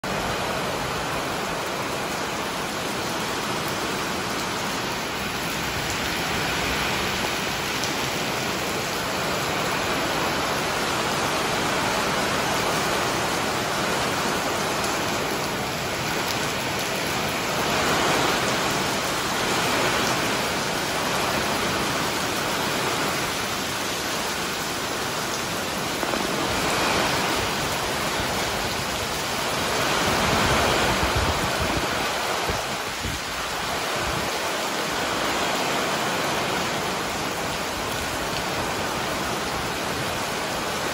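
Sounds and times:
steady rain falling: 0:00.0 - 0:40.9.

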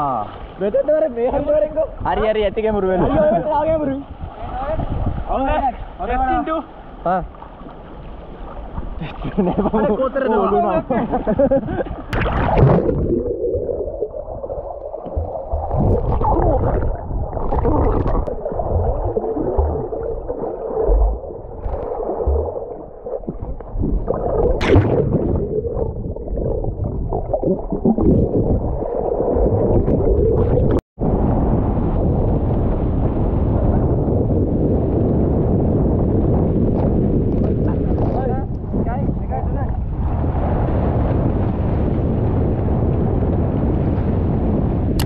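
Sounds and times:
swimmer splashing: 0:12.0 - 0:30.8
dull underwater thumps: 0:12.1 - 0:30.8
muffled underwater gurgling: 0:12.1 - 0:30.8.

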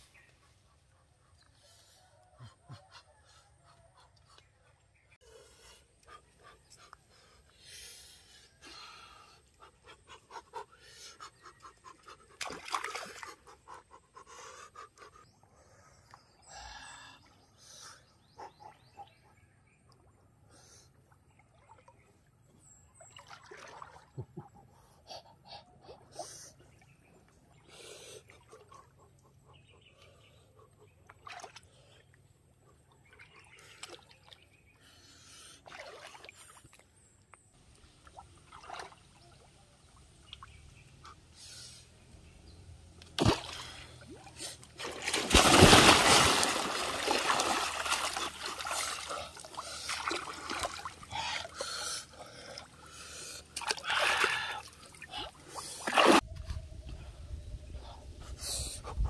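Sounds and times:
water sloshing and trickling: 0:21.3 - 0:24.4, 0:35.6 - 0:40.6, 0:43.1 - 0:51.5
spear hit and loud splash: 0:45.0 - 0:46.8.

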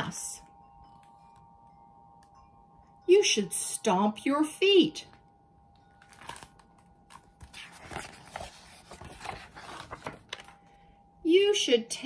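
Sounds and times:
paper rustling: 0:06.0 - 0:10.6.

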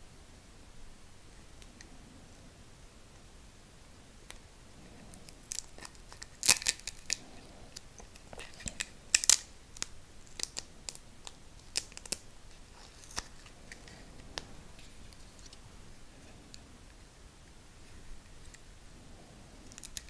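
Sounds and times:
adhesive grip wrap crackling: 0:05.2 - 0:15.6, 0:19.7 - 0:20.0.

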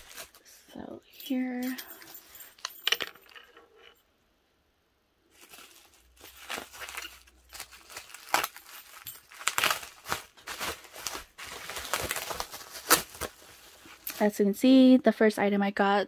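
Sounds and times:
bubble wrap crinkling and tearing: 0:00.0 - 0:00.6, 0:05.3 - 0:14.4.

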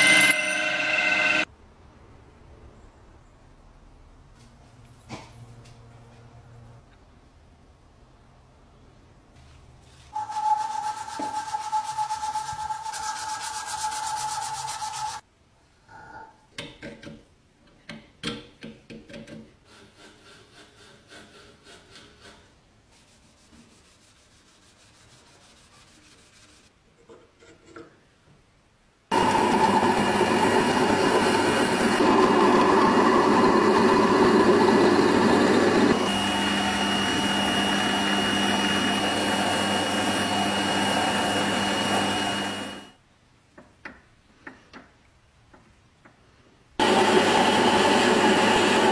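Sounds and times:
metal lathe cutting steel: 0:00.0 - 0:01.5, 0:29.1 - 0:42.9.

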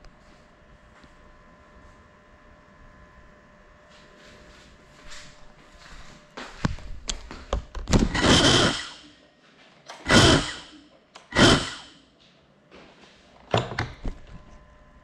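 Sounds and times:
drone propellers spinning up: 0:08.0 - 0:09.1, 0:09.9 - 0:12.0.

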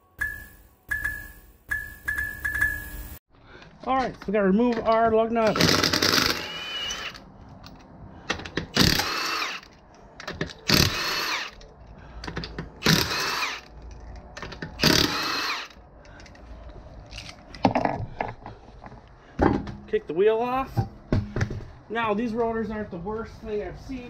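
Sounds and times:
impact wrench spinning lug nuts: 0:05.5 - 0:07.3, 0:08.4 - 0:11.7, 0:12.4 - 0:15.8.

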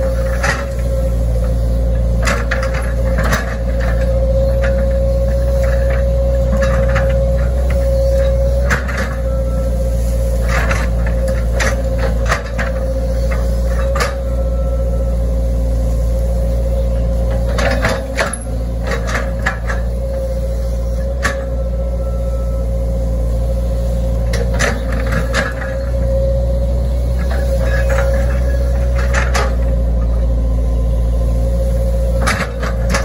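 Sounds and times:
excavator diesel engine running: 0:00.0 - 0:33.0
excavator bucket knocking and scraping: 0:00.1 - 0:00.8, 0:02.0 - 0:09.2, 0:10.4 - 0:14.3, 0:17.2 - 0:20.0, 0:24.2 - 0:25.9, 0:27.2 - 0:30.1, 0:32.1 - 0:33.0.

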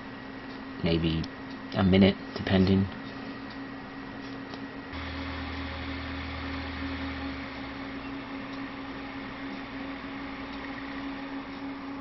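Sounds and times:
laptop whirring and humming: 0:00.0 - 0:12.0
deeper hum: 0:05.0 - 0:12.0.

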